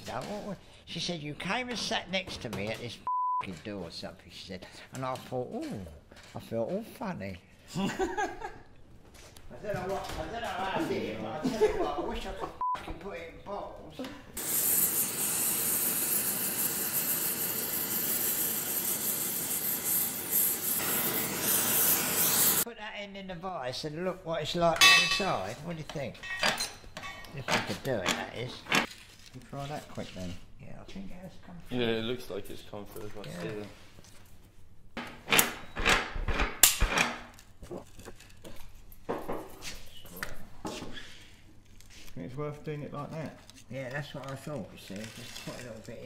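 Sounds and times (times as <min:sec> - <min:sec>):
gas torch flames hissing: 0:14.4 - 0:22.7.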